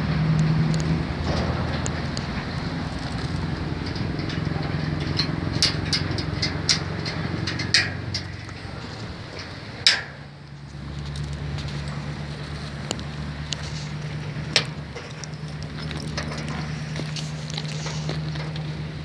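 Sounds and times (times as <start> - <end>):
low motor hum: 0.0 - 19.0
metal latch clicks and knocks: 0.4 - 10.2.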